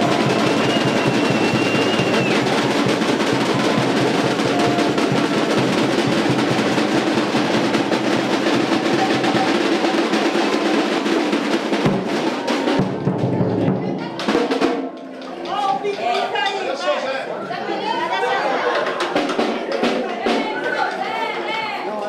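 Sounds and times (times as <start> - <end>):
drums playing a dense beat: 0.0 - 15.0, 18.7 - 20.6.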